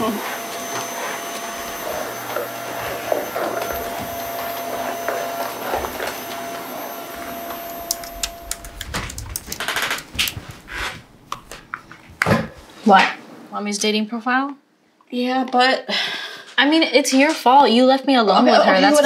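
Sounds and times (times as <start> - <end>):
vacuum cleaner running: 0.0 - 12.8.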